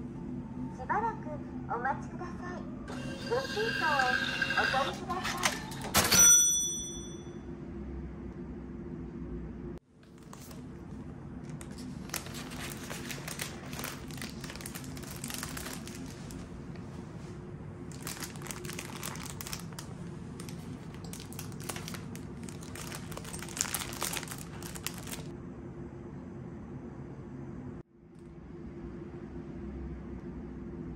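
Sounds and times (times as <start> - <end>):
crinkly material crumpling: 10.0 - 25.3.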